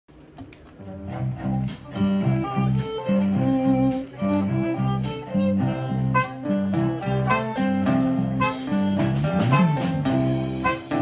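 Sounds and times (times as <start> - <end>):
bass riff: 0.8 - 11.0
drum beat: 7.3 - 11.0.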